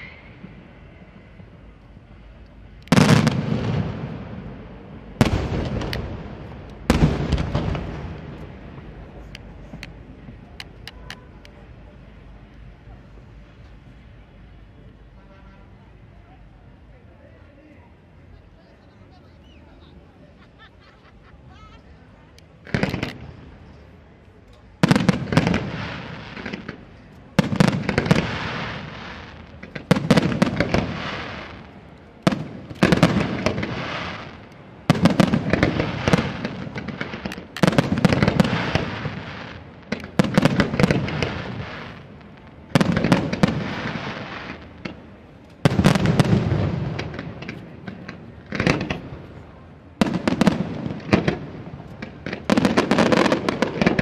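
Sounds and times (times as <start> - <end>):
firework shells bursting: 22.6 - 23.3.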